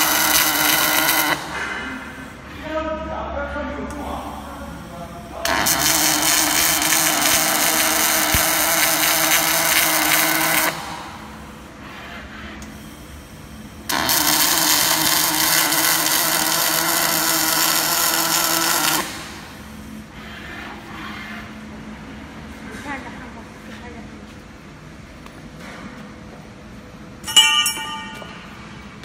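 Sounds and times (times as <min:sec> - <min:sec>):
welding arc hissing: 0:00.0 - 0:01.6, 0:04.2 - 0:11.5, 0:13.9 - 0:20.0.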